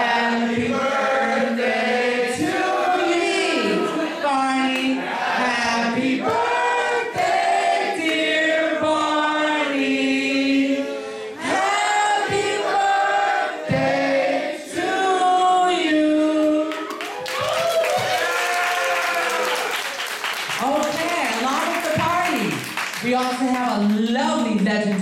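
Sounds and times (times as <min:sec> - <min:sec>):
person singing into a microphone: 0:14.7 - 0:16.8.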